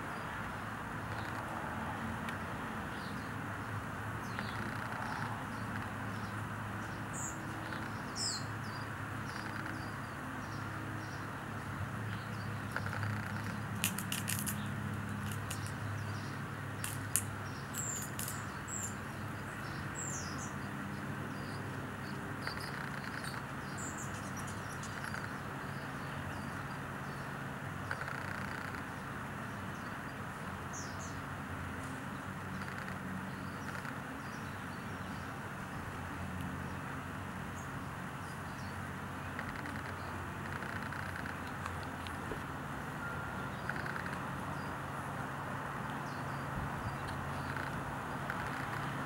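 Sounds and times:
sharp clicks: 0:12.7 - 0:15.8.

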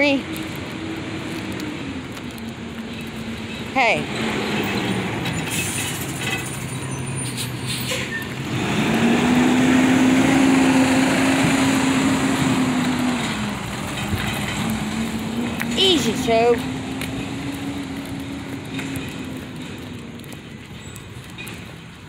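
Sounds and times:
heavy vehicle engine humming: 0:00.0 - 0:22.0
street traffic: 0:00.0 - 0:22.0.

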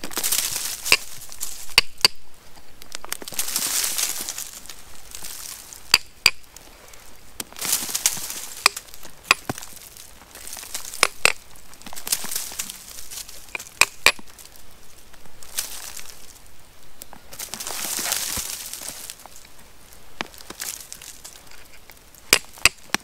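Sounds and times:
hammer striking rock: 0:01.7 - 0:02.2, 0:05.9 - 0:06.4, 0:08.6 - 0:09.6, 0:11.0 - 0:11.4, 0:13.5 - 0:14.2, 0:22.3 - 0:23.0.

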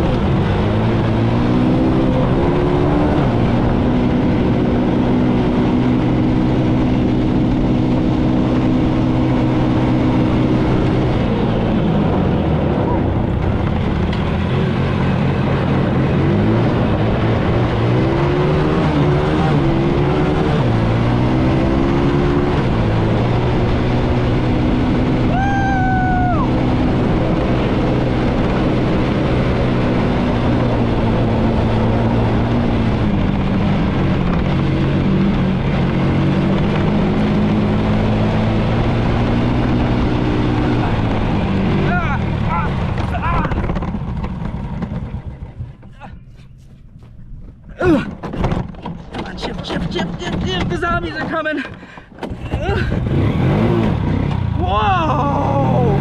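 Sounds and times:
atv engine revving: 0:00.0 - 0:46.2, 0:47.8 - 0:56.0
high-pitched shout: 0:25.3 - 0:26.6, 0:54.6 - 0:56.0.

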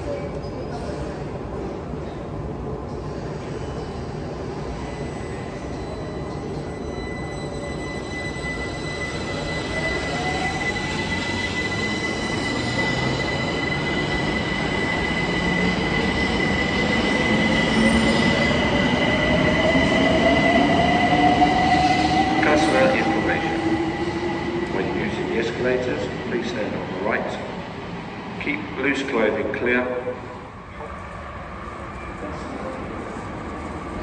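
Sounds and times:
high-pitched squeal: 0:06.6 - 0:26.2.

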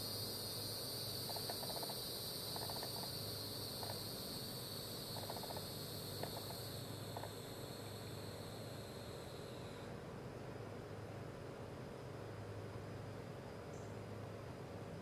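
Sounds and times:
rapid pulsing chirps: 0:00.0 - 0:09.7
high-pitched insect chorus: 0:00.0 - 0:09.9.

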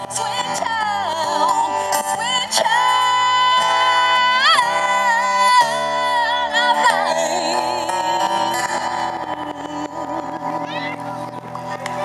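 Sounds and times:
woman singing into a microphone: 0:00.0 - 0:11.7
acoustic guitar: 0:00.0 - 0:12.0.

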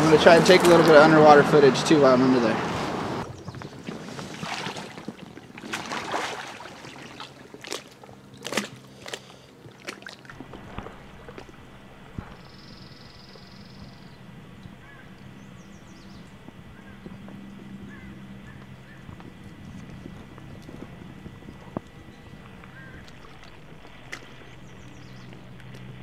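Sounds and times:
water splashing and sloshing: 0:00.0 - 0:12.7, 0:18.4 - 0:26.0.

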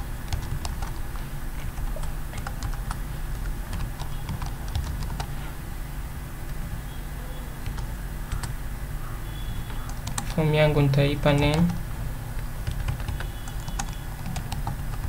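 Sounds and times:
steady low hum: 0:00.0 - 0:15.0
keyboard keys clicking: 0:01.7 - 0:05.3, 0:09.8 - 0:10.4, 0:11.2 - 0:11.8, 0:12.6 - 0:15.0.

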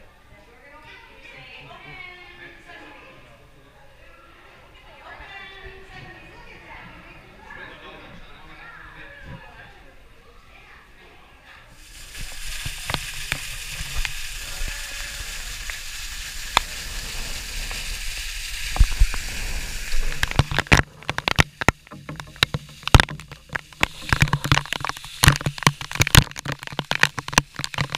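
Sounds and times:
waterfall hissing: 0:11.8 - 0:27.9
water drops striking camera: 0:20.0 - 0:27.9.

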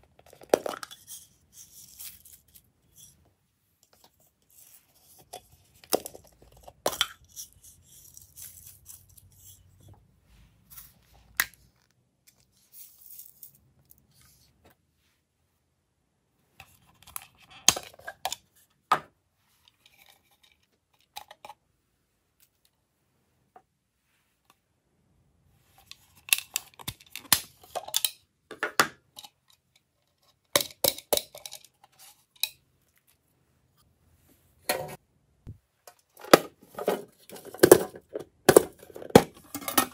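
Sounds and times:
plastic containers clicking and knocking: 0:26.2 - 0:29.4, 0:30.5 - 0:31.8, 0:35.9 - 0:39.9.

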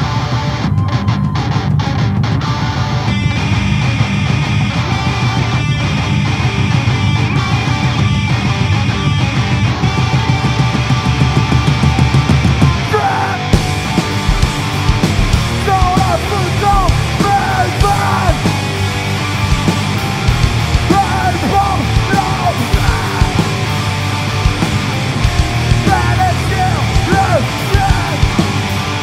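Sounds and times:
bass guitar: 0:00.0 - 0:29.0
distorted electric guitars: 0:00.0 - 0:29.0
drums: 0:00.0 - 0:29.0
screamed vocals: 0:12.8 - 0:13.6, 0:15.6 - 0:18.5, 0:20.9 - 0:23.7, 0:25.8 - 0:28.7.

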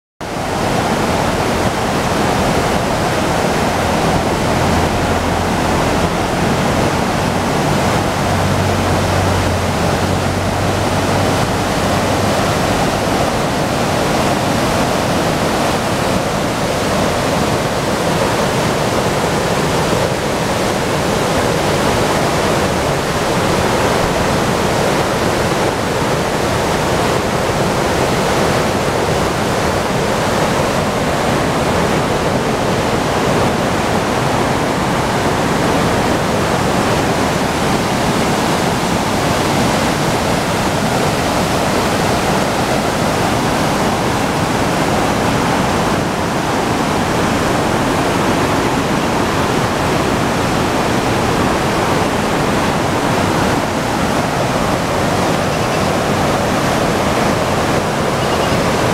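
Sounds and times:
river rushing over rapids: 0:00.2 - 0:58.9.

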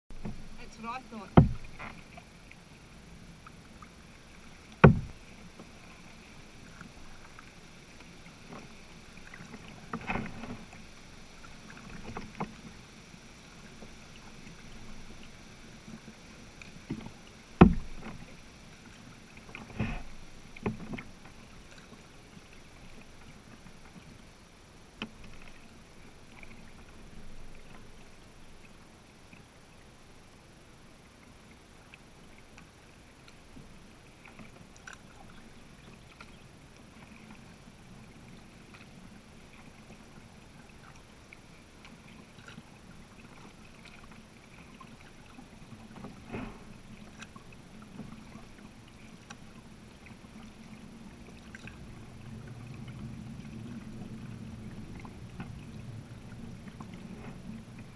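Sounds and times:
kayak paddle splashing: 0:00.1 - 0:29.9, 0:31.9 - 0:57.9
sharp knock: 0:04.8 - 0:05.1.

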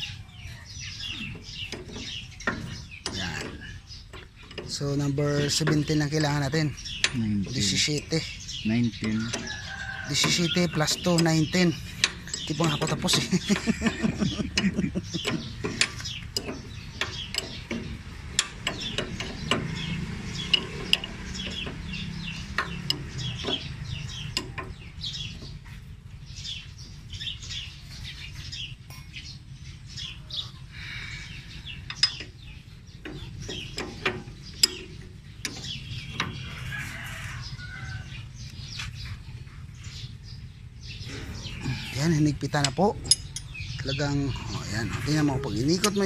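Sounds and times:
birds calling: 0:00.0 - 0:46.0
wrench clicking on metal nuts: 0:42.5 - 0:43.6.

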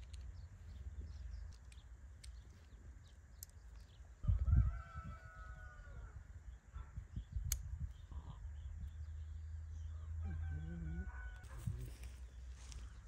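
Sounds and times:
rooster crowing: 0:04.2 - 0:06.2, 0:10.0 - 0:11.6.

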